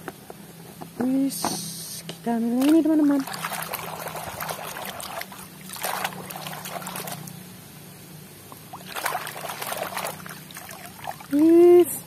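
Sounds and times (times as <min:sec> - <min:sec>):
steady low hum: 0:00.0 - 0:12.0
water splashing and sloshing: 0:02.4 - 0:07.4, 0:08.5 - 0:11.9.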